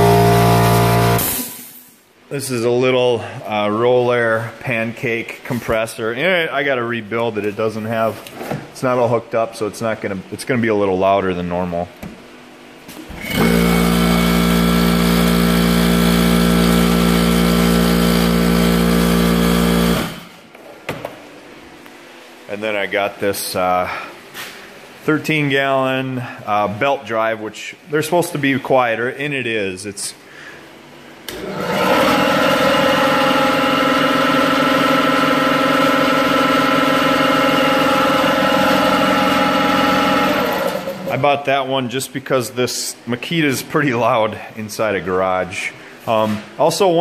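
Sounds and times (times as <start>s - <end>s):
air compressor running: 0.0s - 1.9s, 12.9s - 20.7s, 31.2s - 41.2s.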